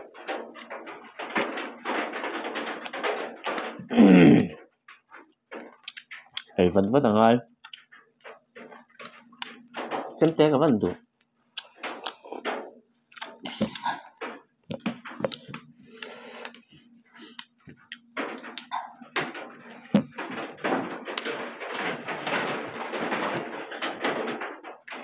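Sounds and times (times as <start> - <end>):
chewing and lip smacking: 7.6 - 7.9, 11.5 - 12.4, 13.1 - 16.6.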